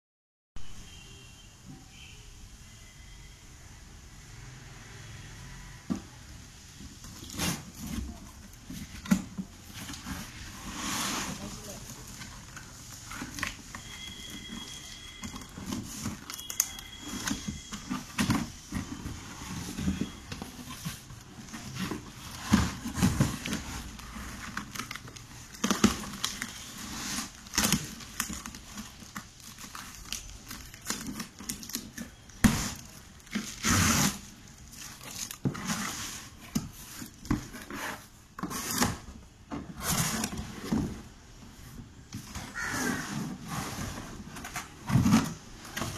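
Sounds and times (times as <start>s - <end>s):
cardboard rustling and scraping: 5.9s - 45.9s
packing tape tearing: 11.3s - 20.0s, 20.6s - 37.8s.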